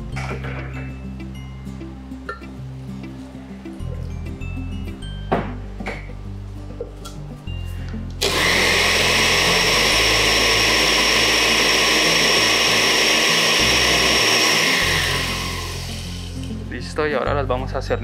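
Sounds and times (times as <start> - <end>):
blender running: 8.2 - 16.5.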